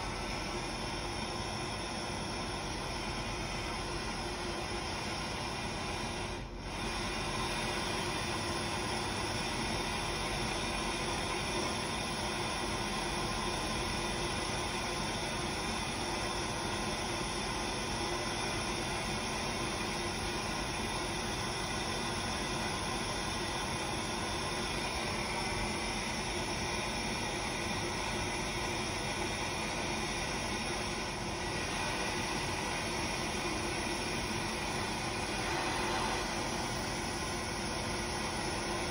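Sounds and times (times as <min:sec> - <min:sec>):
torch flame hissing: 0:24.0 - 0:38.9.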